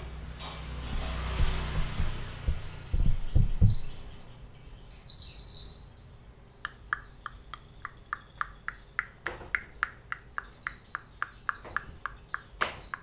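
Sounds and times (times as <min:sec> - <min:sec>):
dull low thumps: 0:00.9 - 0:04.1.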